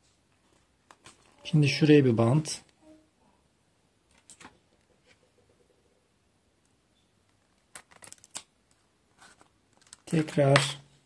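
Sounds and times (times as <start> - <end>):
sticky tape clicks and crackles: 7.5 - 8.8.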